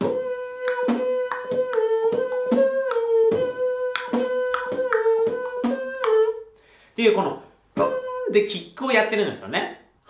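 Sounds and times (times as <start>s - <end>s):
beatboxed kick drum and clicks: 0.0s - 6.4s
nasal humming melody: 0.0s - 6.6s, 7.7s - 8.6s.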